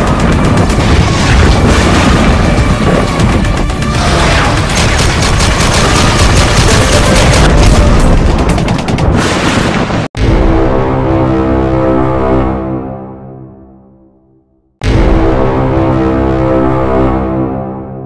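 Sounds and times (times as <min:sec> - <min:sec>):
loud music: 0:00.0 - 0:09.0
machine-gun fire: 0:00.0 - 0:10.1
booms: 0:00.0 - 0:10.8.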